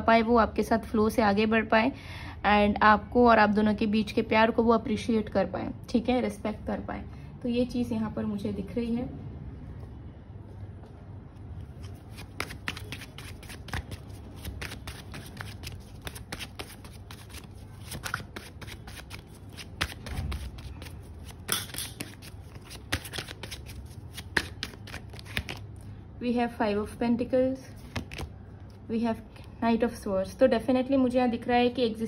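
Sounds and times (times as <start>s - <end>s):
cards being shuffled: 11.4s - 25.8s, 27.8s - 28.8s.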